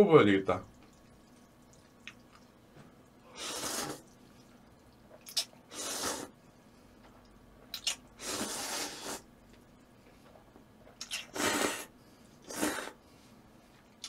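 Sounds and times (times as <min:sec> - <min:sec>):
wet mouth eating sounds: 0:00.7 - 0:06.3, 0:07.6 - 0:09.3, 0:10.8 - 0:13.0.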